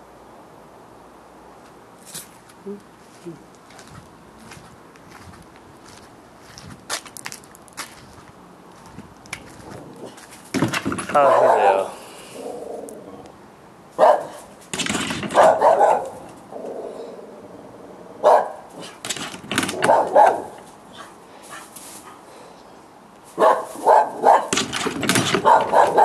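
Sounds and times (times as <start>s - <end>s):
dogs barking: 9.8s - 13.0s, 13.9s - 17.1s, 18.2s - 22.2s, 23.3s - 26.0s.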